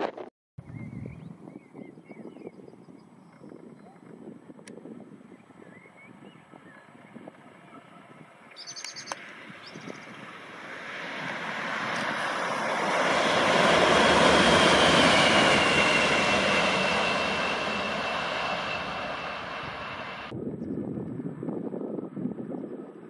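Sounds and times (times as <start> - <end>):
high whine: 7.2 - 20.7
locomotive passing at speed: 9.1 - 20.3
low rumble: 9.4 - 22.6.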